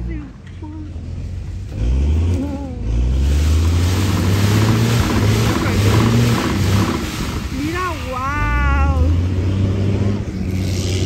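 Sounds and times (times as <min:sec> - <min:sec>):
tree shaker engine running hard: 0:02.1 - 0:09.4
leaves and nuts showering down: 0:03.3 - 0:09.0.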